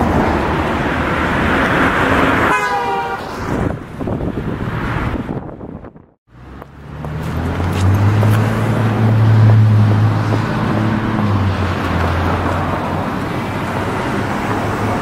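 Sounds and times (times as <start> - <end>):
cars driving past: 0.0 - 5.6, 6.3 - 15.0
car engine humming: 6.3 - 15.0.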